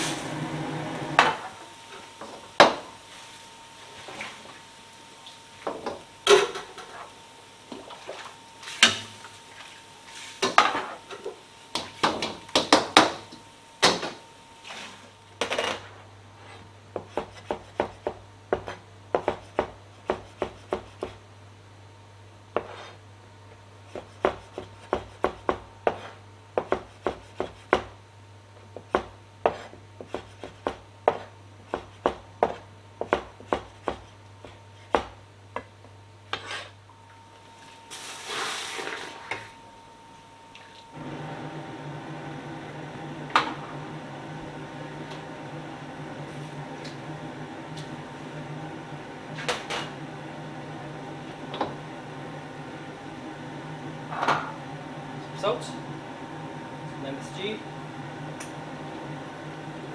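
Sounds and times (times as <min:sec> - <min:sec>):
metal utensil scraping in a wok: 0:36.3 - 0:36.8.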